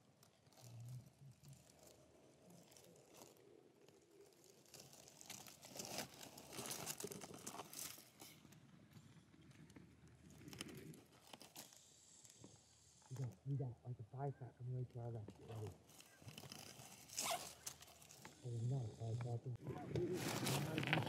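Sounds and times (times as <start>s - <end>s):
dry corn stubble rustling: 0.0s - 8.8s, 15.4s - 18.7s, 20.0s - 21.0s.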